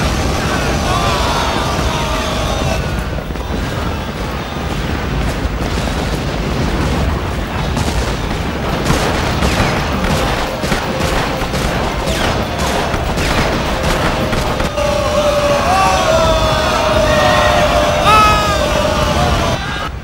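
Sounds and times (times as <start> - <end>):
rifle fire: 0.0 - 14.8
artillery shells exploding: 0.0 - 20.0.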